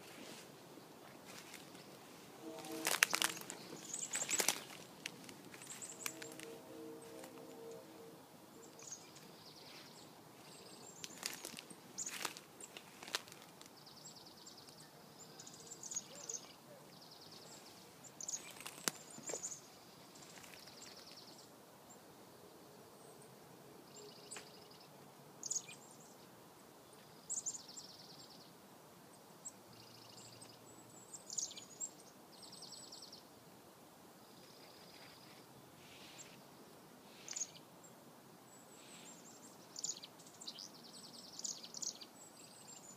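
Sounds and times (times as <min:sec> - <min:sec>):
chickadees alarm calling: 0:01.4 - 0:07.7.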